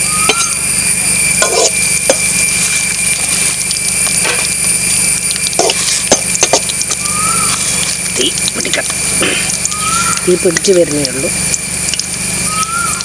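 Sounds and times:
oil sizzling in a pan: 0.0s - 13.0s
metal spoon clinking on pan: 0.3s - 0.6s, 1.4s - 2.2s.

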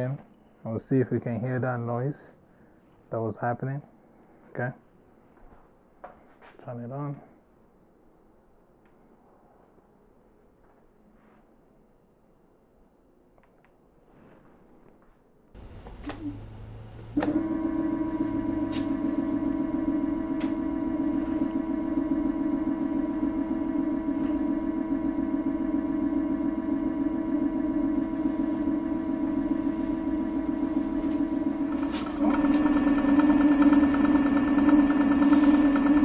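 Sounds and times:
electric scooter motor whine: 15.6s - 36.0s.

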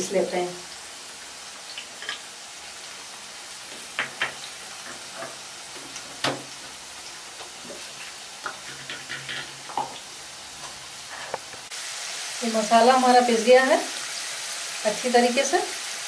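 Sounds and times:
potatoes sizzling in oil: 0.0s - 16.0s
dishes clicking and knocking: 3.9s - 5.4s, 8.4s - 10.0s.

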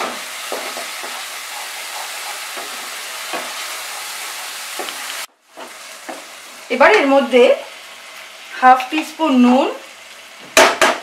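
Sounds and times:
spatula scraping wok: 0.0s - 6.7s
spices sizzling in oil: 0.0s - 11.0s.

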